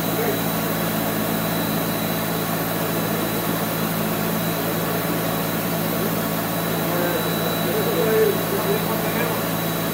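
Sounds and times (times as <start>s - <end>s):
ventilation hum: 0.0s - 9.9s
faint high whine: 5.9s - 9.9s.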